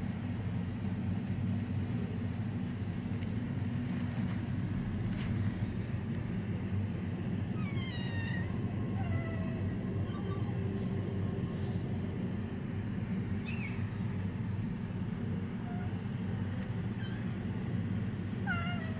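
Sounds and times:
steady low rumble: 0.0s - 18.9s
cats meowing: 7.5s - 11.9s, 13.3s - 14.2s, 15.6s - 18.9s.

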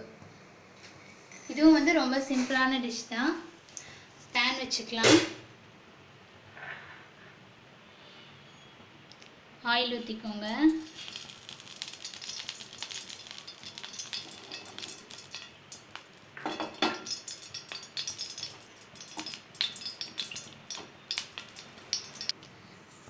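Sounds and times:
oil sizzling in a pan: 10.4s - 22.4s
crackles and pops: 10.5s - 22.4s.

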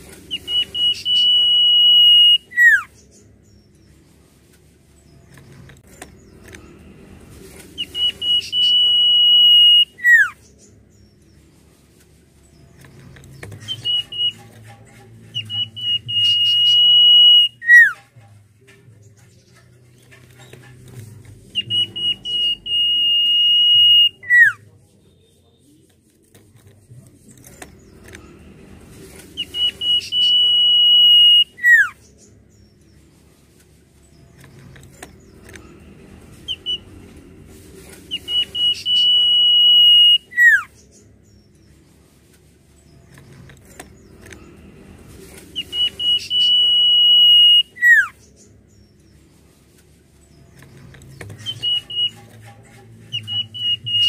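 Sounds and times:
bird whistling: 0.3s - 2.9s, 7.8s - 10.4s, 13.6s - 14.6s, 15.3s - 18.0s, 21.5s - 24.6s, 29.4s - 32.0s, 36.5s - 36.9s, 38.1s - 40.7s, 45.5s - 48.2s, 51.4s - 52.3s, 53.1s - 54.0s.

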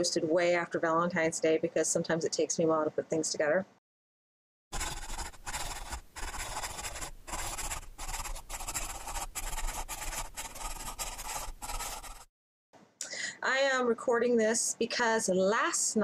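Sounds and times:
pen writing on paper: 4.8s - 12.3s.

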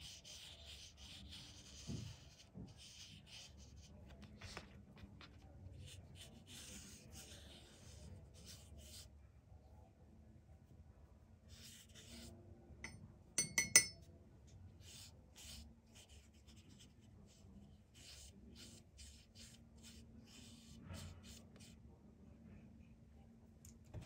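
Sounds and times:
brush swishing across paper: 0.0s - 9.1s, 14.8s - 21.8s.

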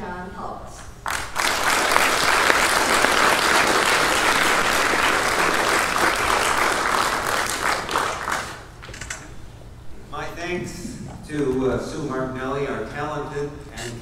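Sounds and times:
audience applauding: 1.0s - 9.0s.

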